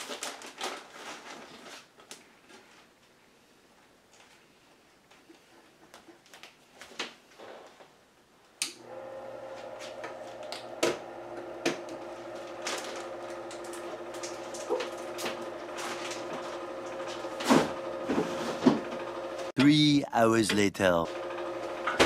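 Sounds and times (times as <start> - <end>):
motor humming steadily: 8.8 - 19.5, 21.1 - 22.0.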